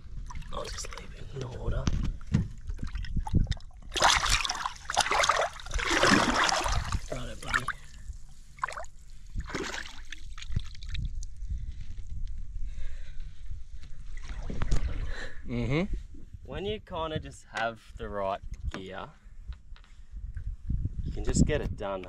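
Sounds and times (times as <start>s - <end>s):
water splashing and sloshing: 0.0s - 11.2s, 14.0s - 15.2s.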